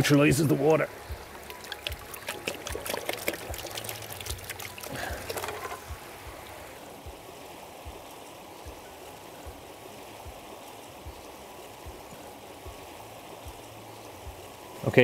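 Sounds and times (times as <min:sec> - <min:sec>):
river water rushing: 0:00.0 - 0:15.0
faint low thumps: 0:05.7 - 0:14.6.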